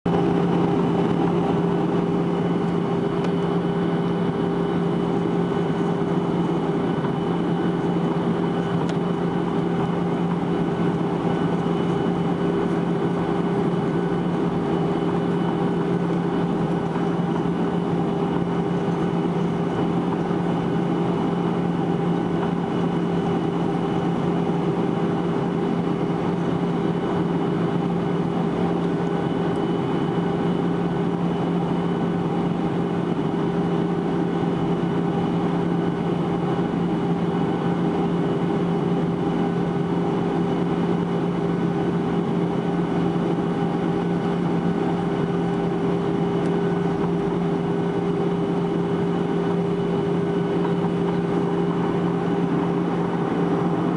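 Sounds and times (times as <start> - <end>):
jet engines droning: 0.1 - 53.9
high whine: 41.4 - 53.9.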